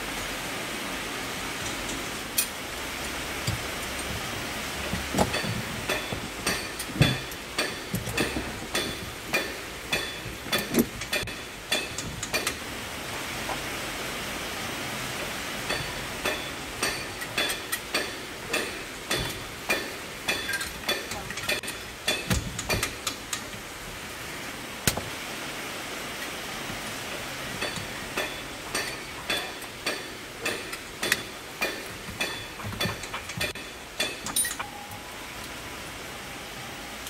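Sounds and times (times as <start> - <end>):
steady background hiss: 0.0 - 37.0
clicks and knocks of metal parts: 4.8 - 12.6, 15.7 - 23.6, 27.6 - 34.7.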